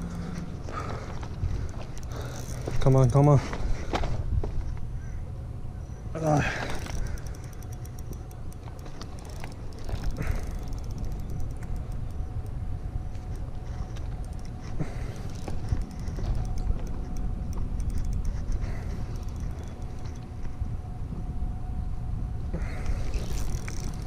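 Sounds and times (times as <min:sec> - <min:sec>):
wind rumble: 0:00.0 - 0:05.8, 0:06.4 - 0:24.0
fishing reel clicking rapidly: 0:01.7 - 0:03.3, 0:06.6 - 0:12.6, 0:14.2 - 0:20.3, 0:23.1 - 0:24.0.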